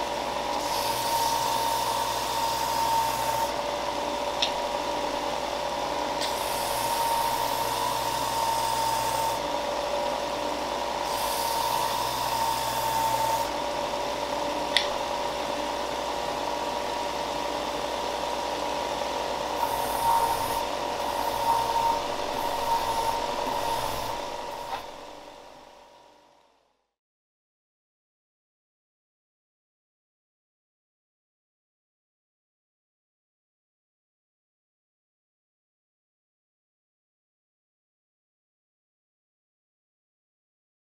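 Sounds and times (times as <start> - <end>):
belt sander motor hum: 0.1 - 25.6
wood sanding rasp: 19.6 - 25.3.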